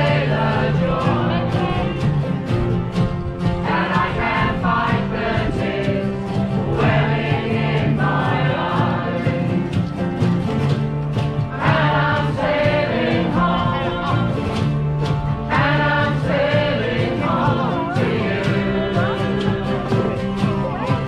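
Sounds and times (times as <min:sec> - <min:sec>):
voices singing together: 0:00.0 - 0:02.8, 0:03.4 - 0:10.1, 0:11.2 - 0:21.0
strummed acoustic guitars: 0:00.0 - 0:21.0.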